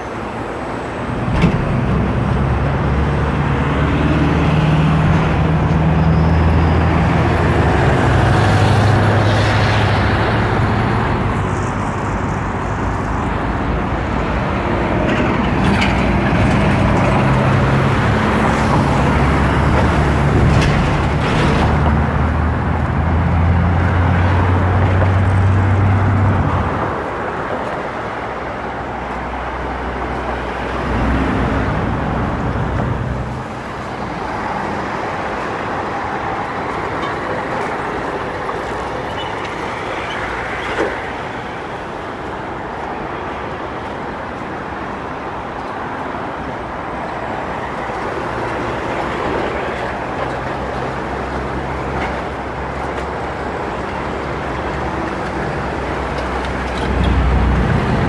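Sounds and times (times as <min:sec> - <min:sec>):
tyre and road noise: 0:00.0 - 0:58.0
vehicle engine hum: 0:47.7 - 0:58.0.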